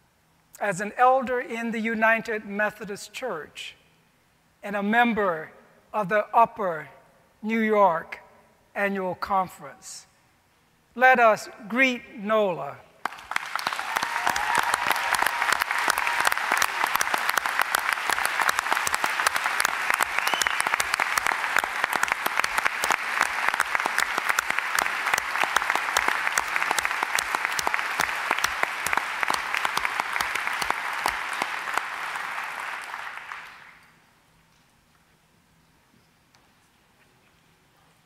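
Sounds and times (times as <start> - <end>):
crowd applauding: 13.0 - 33.9.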